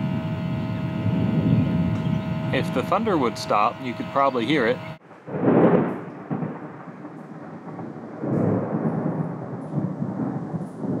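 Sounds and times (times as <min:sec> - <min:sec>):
thunder rumbling: 0:00.0 - 0:11.0.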